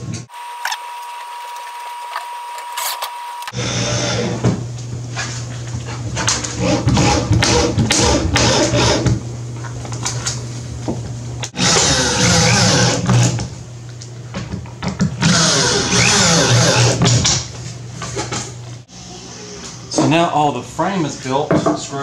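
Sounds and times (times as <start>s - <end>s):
power drill driving screws into wood: 0.6s - 3.6s, 11.6s - 13.4s, 15.2s - 17.2s.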